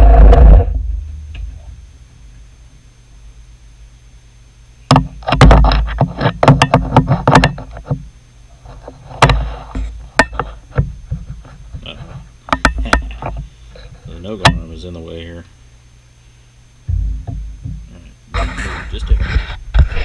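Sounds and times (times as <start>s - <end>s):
metal knocks: 12.5s - 13.5s, 16.9s - 18.6s.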